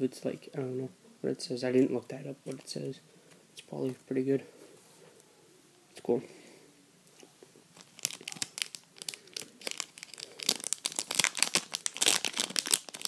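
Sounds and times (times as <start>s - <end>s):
foil wrapper crinkling: 7.7s - 13.0s.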